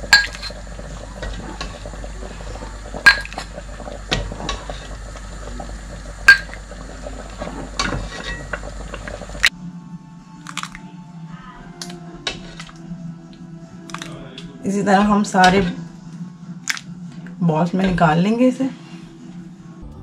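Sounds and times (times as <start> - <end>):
soup pouring and splashing: 0.0 - 9.5, 10.5 - 10.8.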